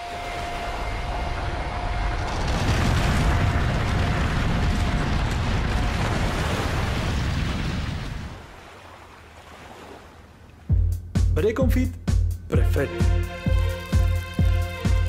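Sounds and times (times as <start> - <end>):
deep rumble of calving ice: 0.0 - 8.4
ice and spray crashing into water: 2.3 - 8.4.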